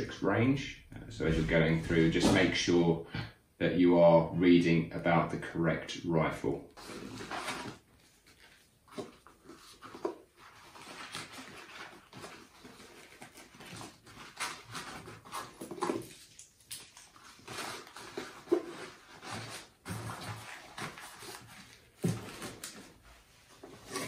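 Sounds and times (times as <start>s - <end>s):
rustling of cards and fabric: 6.8s - 24.0s.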